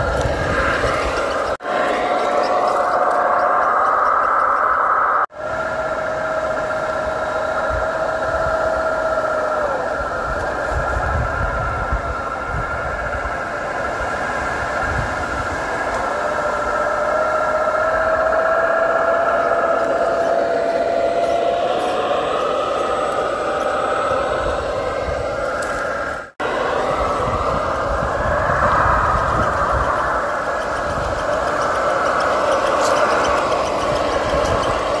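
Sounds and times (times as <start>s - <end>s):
rc car motor whine: 13.4s - 35.0s.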